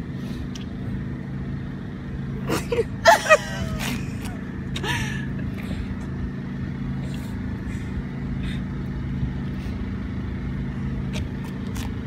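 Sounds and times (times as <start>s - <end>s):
engine humming: 0.0s - 12.0s.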